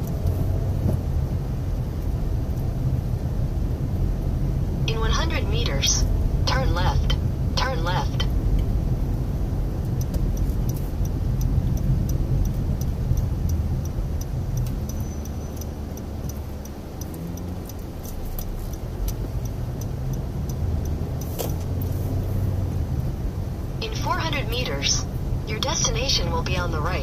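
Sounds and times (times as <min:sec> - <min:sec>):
car engine and tyre noise: 0:00.0 - 0:27.0
regular light ticking: 0:09.8 - 0:22.4.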